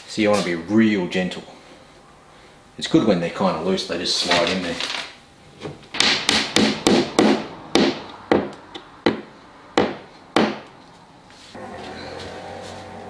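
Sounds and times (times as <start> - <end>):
hammer tapping wooden dowels: 6.0 - 10.7.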